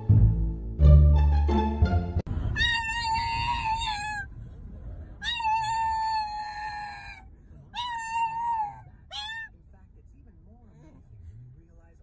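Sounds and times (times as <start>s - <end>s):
dog howling: 2.6s - 4.3s, 5.2s - 7.2s, 7.8s - 9.5s.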